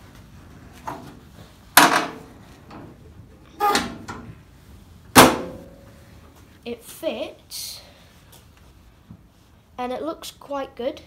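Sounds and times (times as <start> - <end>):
metal hood clunking shut: 3.6 - 4.3, 5.1 - 5.7.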